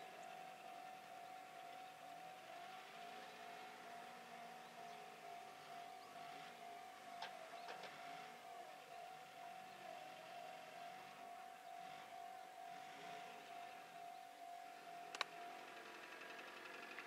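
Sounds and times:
soft clicks: 15.1s - 15.4s.

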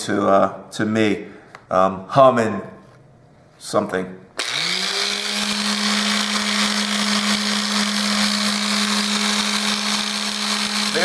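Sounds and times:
electric sander motor humming: 4.4s - 11.0s
sanding wood: 4.9s - 11.0s.

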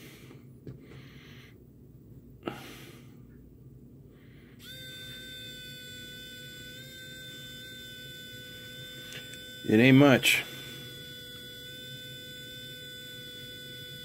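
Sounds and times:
electric screwdriver whine: 4.6s - 14.0s.

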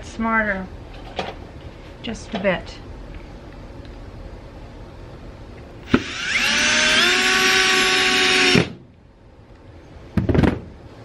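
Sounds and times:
cordless drill whining: 5.8s - 8.8s
drill click: 5.8s - 8.8s.

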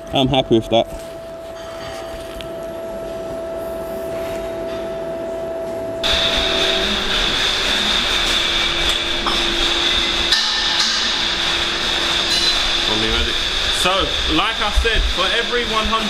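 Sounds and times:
low machine hum: 0.0s - 16.0s
machine with high whine: 0.0s - 16.0s.

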